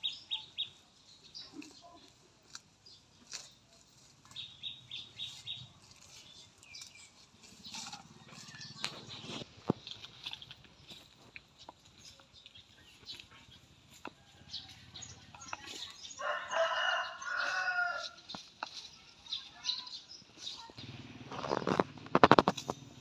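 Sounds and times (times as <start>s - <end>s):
cow cropping grass: 1.4s - 23.0s
rooster crowing: 16.2s - 18.2s.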